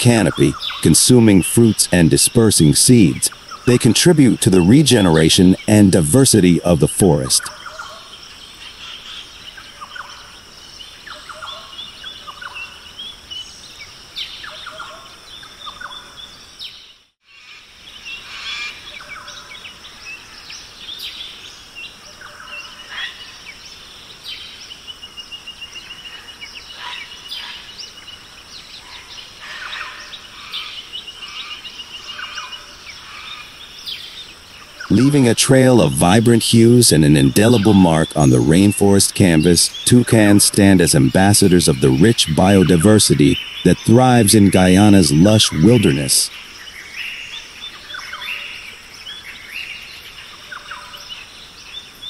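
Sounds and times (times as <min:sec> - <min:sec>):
birds chirping and calling: 0:00.0 - 0:52.0
high insect drone: 0:06.5 - 0:35.3, 0:41.0 - 0:52.0.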